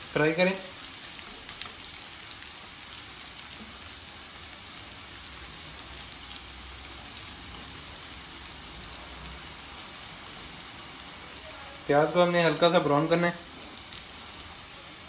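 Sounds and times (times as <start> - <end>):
onion sizzling in hot oil: 0.0 - 15.0.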